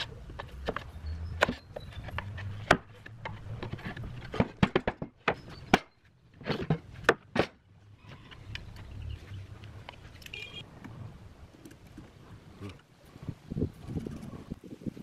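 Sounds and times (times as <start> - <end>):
wooden planks knocking: 2.2 - 7.6.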